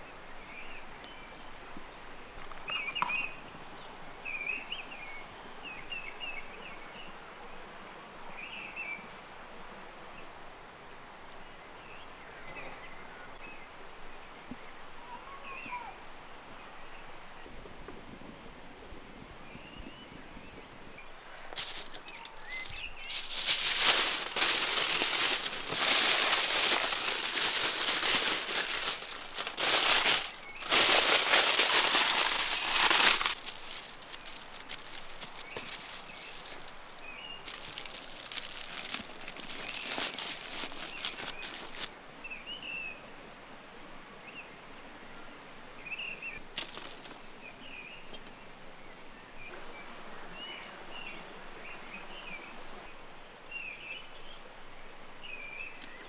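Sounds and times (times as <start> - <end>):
birds chirping: 19.8 - 42.7
aluminium foil crinkling: 21.5 - 42.0, 46.6 - 47.2.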